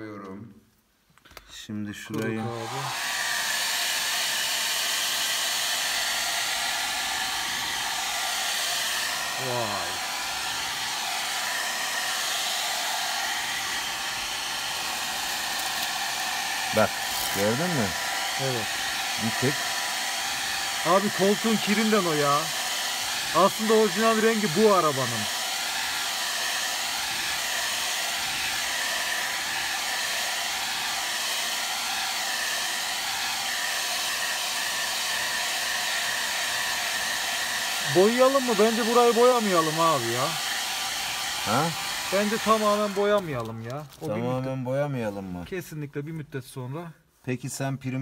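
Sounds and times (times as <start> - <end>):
hair dryer blowing: 2.1 - 44.5.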